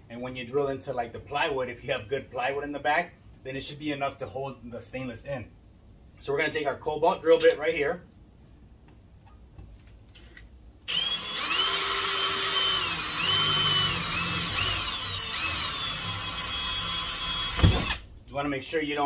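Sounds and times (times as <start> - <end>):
cordless drill drilling metal: 10.9 - 18.0
drill knock: 10.9 - 18.0.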